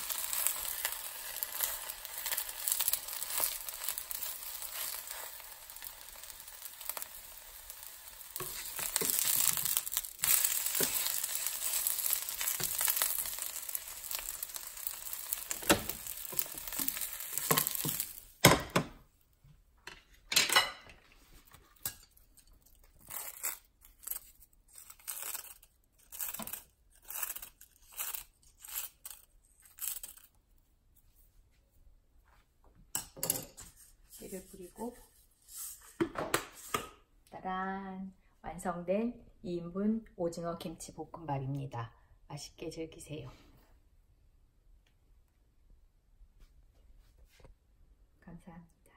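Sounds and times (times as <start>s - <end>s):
egg sizzling in oil: 0.0s - 18.6s, 22.9s - 29.2s
plastic spatula scraping a pan: 33.7s - 36.8s.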